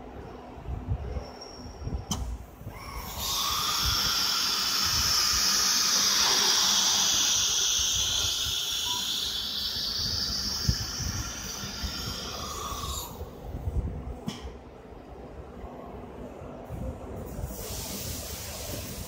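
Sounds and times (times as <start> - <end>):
cnc spindle high-pitched whine: 2.7 - 13.2.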